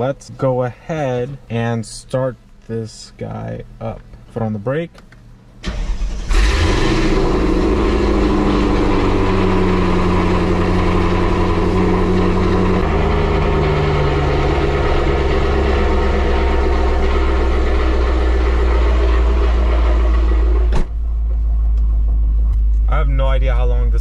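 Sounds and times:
engine starter cranking: 5.6s - 7.1s
car engine idling: 5.6s - 24.0s.

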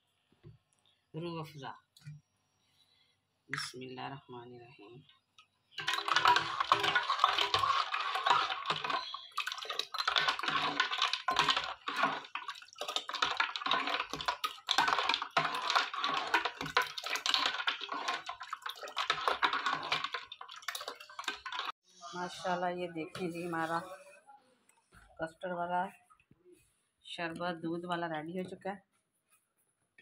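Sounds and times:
spoon and ice clinking in metal pot: 5.8s - 21.7s.

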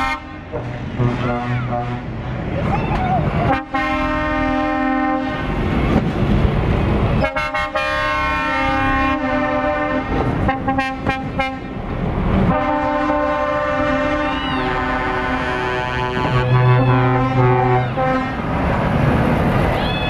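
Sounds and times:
lorry air horn blasts: 0.0s - 2.2s, 3.4s - 5.4s, 7.2s - 11.7s, 12.5s - 18.4s
diesel engines rumbling: 0.0s - 20.0s.

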